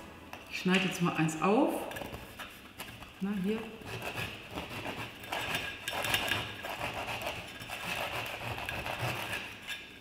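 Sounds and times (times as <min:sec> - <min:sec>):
knife sawing through bread bun: 0:03.8 - 0:09.6.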